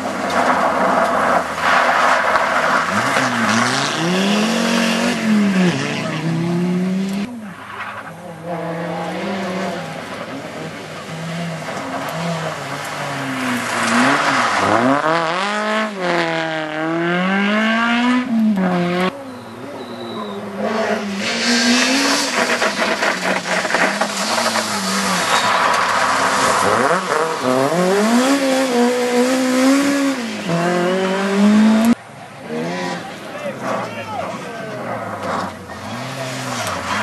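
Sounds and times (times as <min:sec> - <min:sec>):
gravel spraying from tyres: 0:00.0 - 0:05.5, 0:09.8 - 0:16.2, 0:21.1 - 0:31.1
rally car engine revving: 0:00.0 - 0:37.0.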